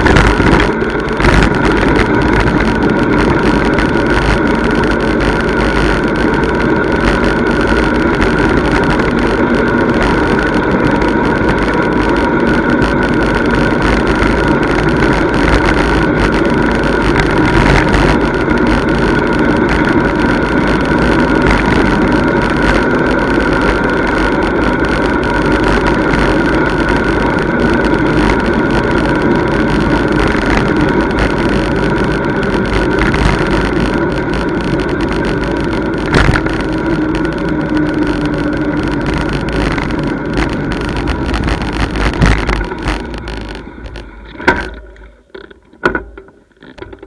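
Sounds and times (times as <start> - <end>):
faint steady whine: 0.0 - 47.0
rushing wind and road noise: 0.0 - 47.0
clunks: 41.4 - 47.0.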